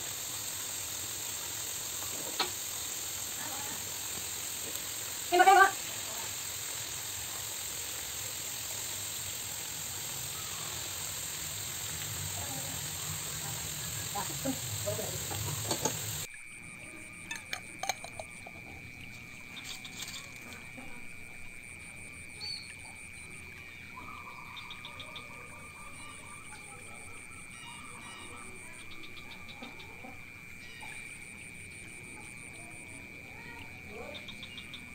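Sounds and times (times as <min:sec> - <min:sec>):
coconut milk sizzling in a wok: 0:00.0 - 0:34.9
faint chirps: 0:00.0 - 0:34.9
utensils knocking against pan: 0:15.2 - 0:16.2, 0:17.3 - 0:18.5.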